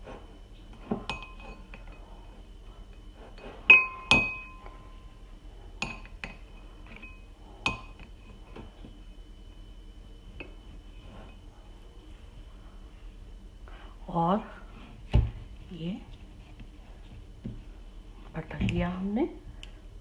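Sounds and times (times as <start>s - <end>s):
metal spoon clinking on ceramic bowl: 1.0s - 2.0s, 3.7s - 4.7s, 5.8s - 8.1s.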